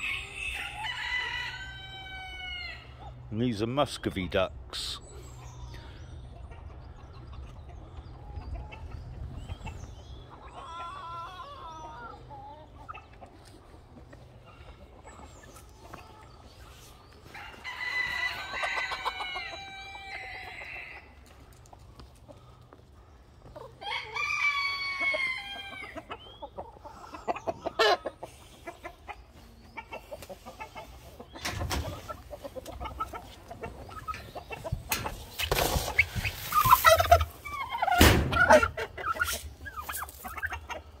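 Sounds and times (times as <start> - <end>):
roosters crowing: 0.0 - 3.3, 17.2 - 21.4, 23.6 - 26.2
hens clucking: 0.0 - 41.0.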